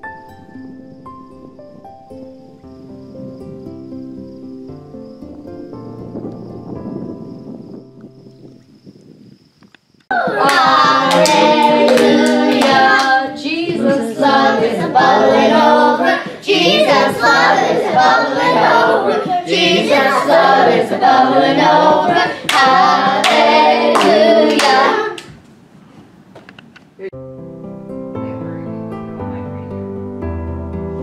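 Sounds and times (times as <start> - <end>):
girls and women singing: 10.1 - 25.3
hand claps and slaps: 10.4 - 13.2, 22.5 - 25.4.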